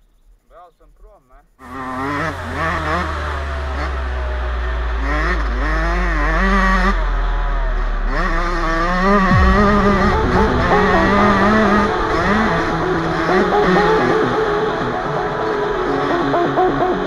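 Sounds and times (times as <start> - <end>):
dirt bike engine revving: 1.6 - 17.0
steady low rumble: 4.6 - 15.9.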